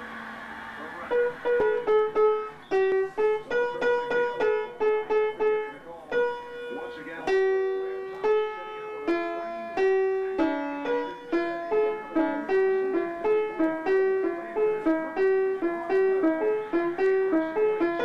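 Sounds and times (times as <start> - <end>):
child playing piano notes: 1.0 - 18.0.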